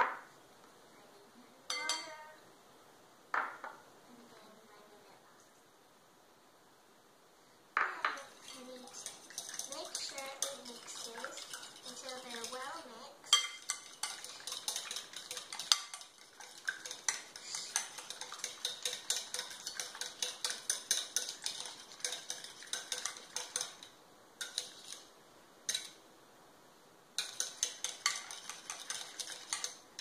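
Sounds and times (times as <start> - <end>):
fork beating in glass bowl: 13.3 - 25.0, 27.2 - 29.8.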